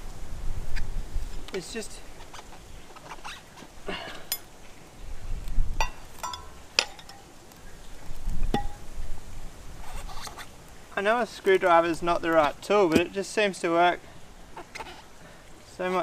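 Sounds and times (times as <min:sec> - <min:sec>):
screwdriver clinking on wheel rim: 0:05.9 - 0:07.2.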